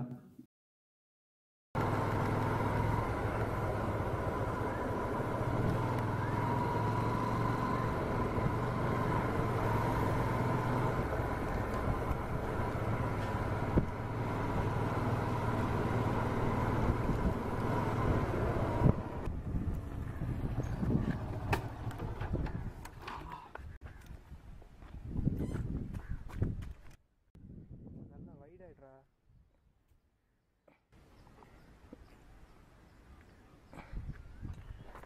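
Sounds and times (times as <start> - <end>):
constant high whine: 1.8 - 20.2
motorcycle engine running: 1.8 - 22.8.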